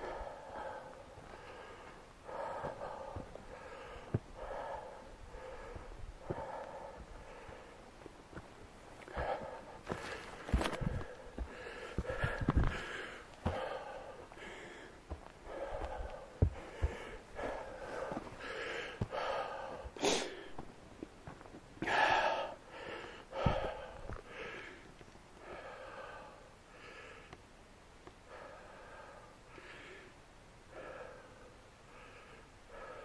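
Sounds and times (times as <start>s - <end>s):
person gasping for breath: 0.0s - 7.8s, 9.1s - 20.7s, 21.8s - 27.3s
footsteps on trail: 0.1s - 22.2s, 23.3s - 24.4s.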